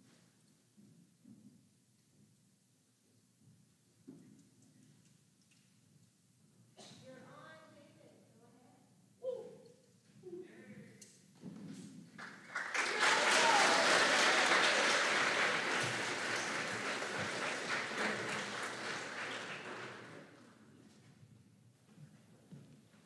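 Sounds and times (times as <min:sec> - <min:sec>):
audience applauding: 0:12.2 - 0:20.6.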